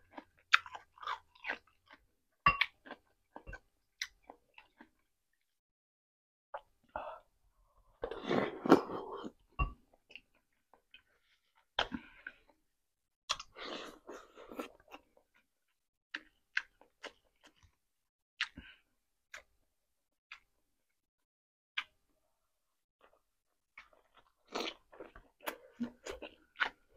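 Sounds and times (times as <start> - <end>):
wet chewing and lip-smacking: 0.1 - 2.0, 14.5 - 17.8, 18.4 - 18.7, 23.0 - 26.9.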